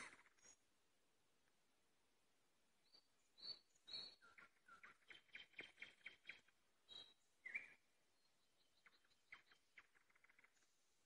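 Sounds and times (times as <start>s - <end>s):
nightingale singing: 0.0s - 0.7s, 2.8s - 10.8s.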